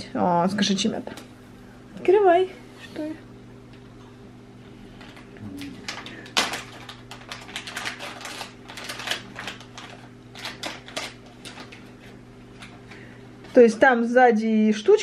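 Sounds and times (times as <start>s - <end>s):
packaging crinkling: 5.0s - 12.8s.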